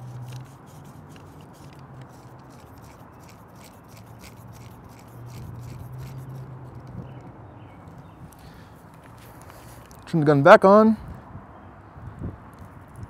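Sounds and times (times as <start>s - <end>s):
barrel threads clicking and scraping: 0.0s - 7.3s.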